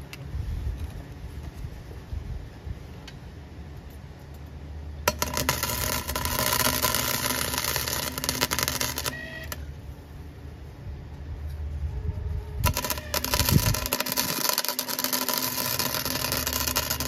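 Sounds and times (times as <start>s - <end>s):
welder arc crackling: 5.1s - 9.8s, 12.6s - 17.0s.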